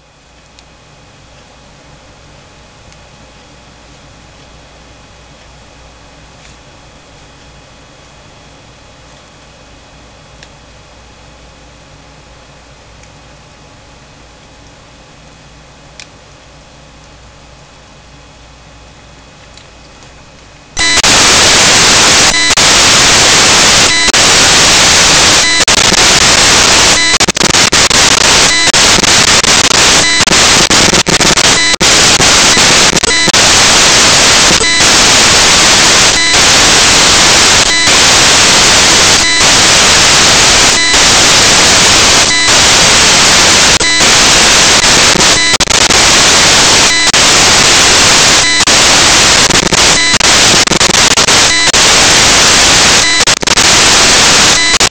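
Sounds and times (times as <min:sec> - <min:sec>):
loud static hiss: 0:20.8 - 0:54.9.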